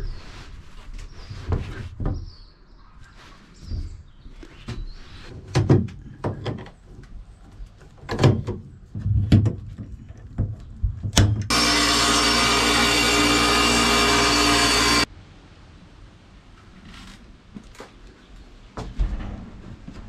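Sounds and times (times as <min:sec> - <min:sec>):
table saw running: 0:11.5 - 0:15.1.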